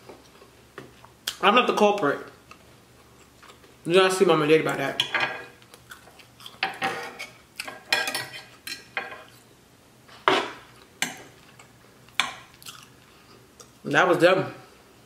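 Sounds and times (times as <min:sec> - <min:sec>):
cutlery clinking on plate: 0:06.6 - 0:09.3.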